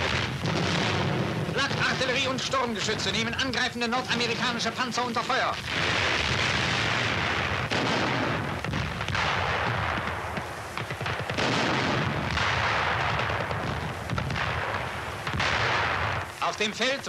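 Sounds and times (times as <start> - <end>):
artillery gun reports: 0.0 - 6.6, 16.3 - 17.0
shell bursts rumbling: 0.0 - 17.0.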